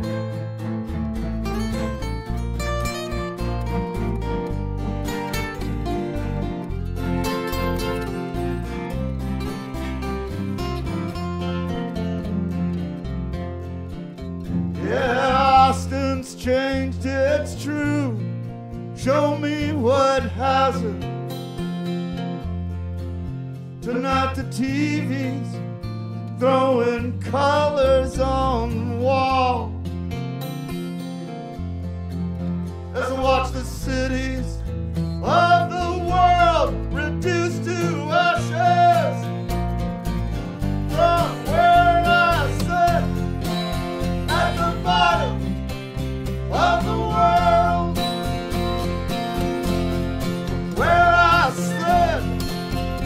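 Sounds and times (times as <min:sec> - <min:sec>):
electric bass low notes: 0:00.0 - 0:21.3, 0:31.2 - 0:53.0
strummed acoustic guitar: 0:00.0 - 0:53.0
man singing: 0:14.8 - 0:18.3, 0:19.0 - 0:21.1, 0:23.8 - 0:25.6, 0:26.4 - 0:29.8, 0:32.9 - 0:39.4, 0:40.9 - 0:45.5, 0:46.5 - 0:48.1, 0:50.7 - 0:52.6.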